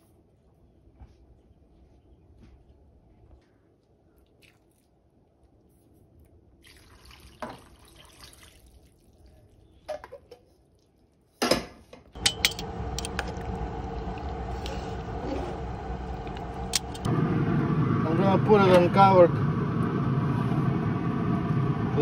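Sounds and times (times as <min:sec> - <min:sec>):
outdoor background noise: 0:00.0 - 0:22.0
liquid pouring and splashing: 0:06.6 - 0:09.2
metal spoon clinking on pot: 0:12.2 - 0:13.2.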